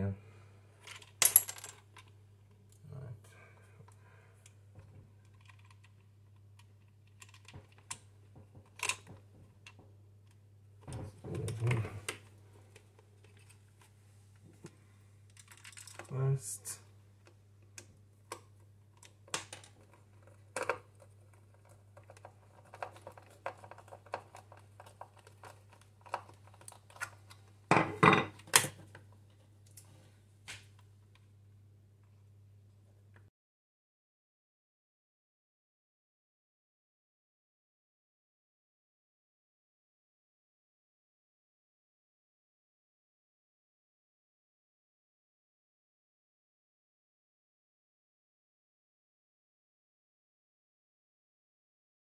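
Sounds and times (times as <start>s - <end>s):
low steady hum: 0.0s - 33.3s.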